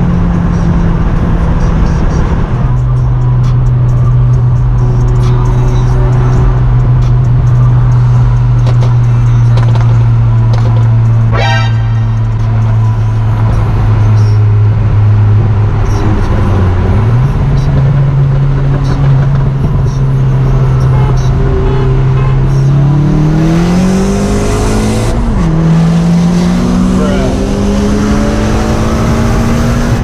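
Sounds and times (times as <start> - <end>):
car engine running: 0.0 - 30.0
turbo whistle: 11.3 - 12.3.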